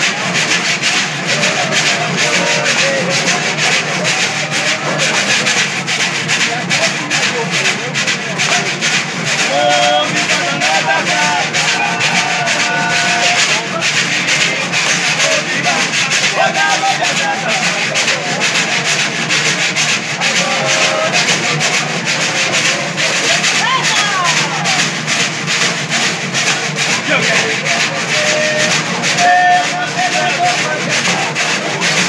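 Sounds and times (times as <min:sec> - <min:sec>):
bamboo scraper rasping: 0:00.0 - 0:32.0
men singing: 0:00.0 - 0:32.0
stringed instruments playing: 0:00.0 - 0:32.0.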